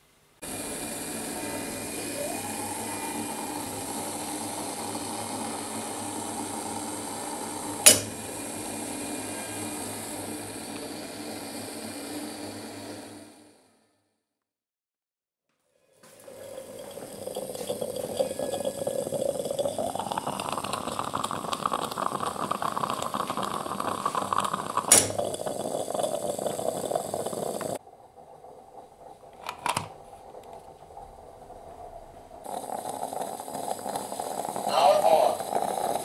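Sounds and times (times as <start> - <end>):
moka pot gurgling and hissing: 0.4 - 13.6, 15.8 - 36.0.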